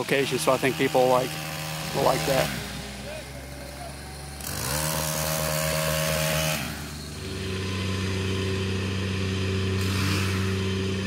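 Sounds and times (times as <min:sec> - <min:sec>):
loader engine running: 0:00.0 - 0:11.0
pole saw engine revving: 0:00.0 - 0:11.0.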